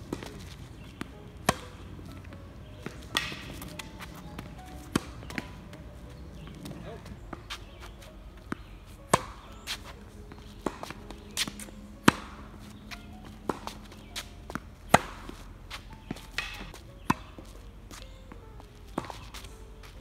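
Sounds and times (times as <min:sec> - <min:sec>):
racket striking tennis ball: 0:00.0 - 0:20.0
ball bouncing on hard court: 0:00.1 - 0:18.1, 0:18.9 - 0:19.6.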